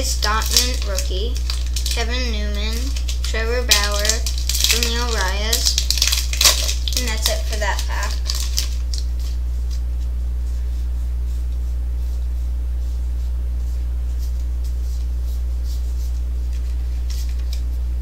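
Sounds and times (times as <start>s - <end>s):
trading cards rustling and clicking: 0.0s - 10.2s, 14.2s - 17.8s
steady low hum: 0.0s - 18.0s.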